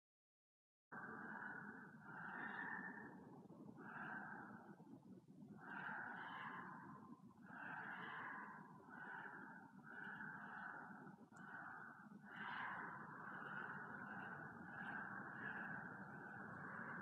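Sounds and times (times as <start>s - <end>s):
person breathing: 5.6s - 17.0s.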